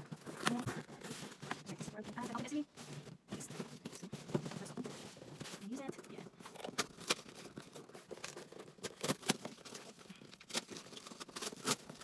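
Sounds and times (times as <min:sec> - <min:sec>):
packing tape tearing: 0:00.0 - 0:01.7, 0:02.3 - 0:12.0
cardboard scraping and tapping: 0:00.0 - 0:09.8.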